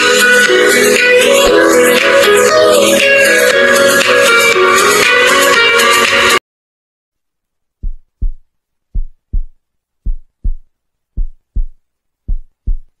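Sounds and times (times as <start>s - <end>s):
heartbeat thumps: 7.8s - 13.0s.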